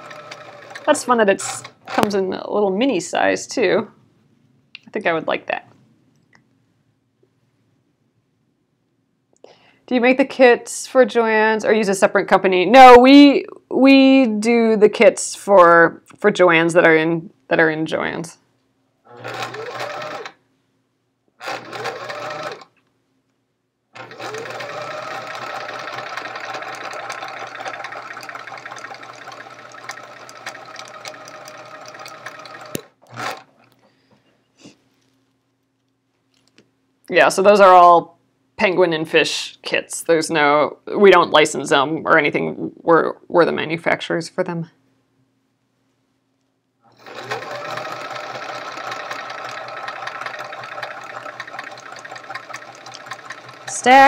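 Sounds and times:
sewing machine running: 0:00.0 - 0:02.2, 0:19.1 - 0:20.4, 0:21.4 - 0:22.7, 0:24.0 - 0:33.7, 0:46.9 - 0:54.0.

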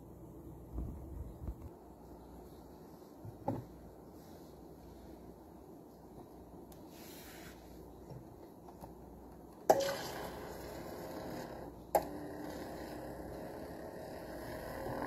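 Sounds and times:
small motor humming: 0:09.7 - 0:15.0.

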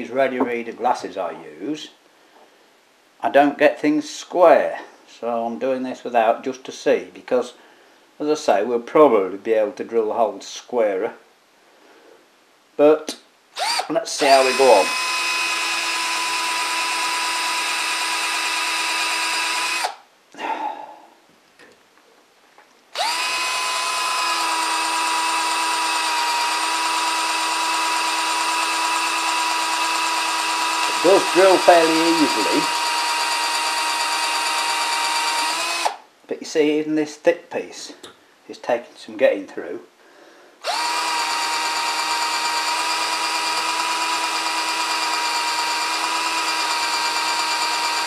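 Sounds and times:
cordless drill drilling into metal: 0:13.6 - 0:20.0, 0:22.9 - 0:36.0, 0:40.6 - 0:48.0.

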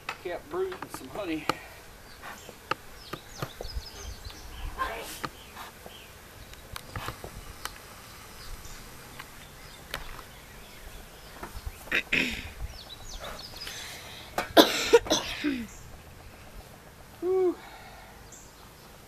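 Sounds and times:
man coughing and clearing throat: 0:11.9 - 0:12.6, 0:14.6 - 0:15.7.

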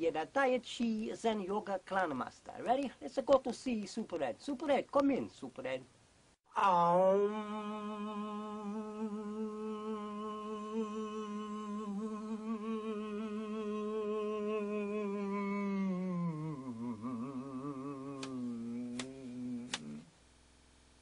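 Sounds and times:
man humming: 0:06.5 - 0:20.1
faint clicks: 0:18.2 - 0:20.0.

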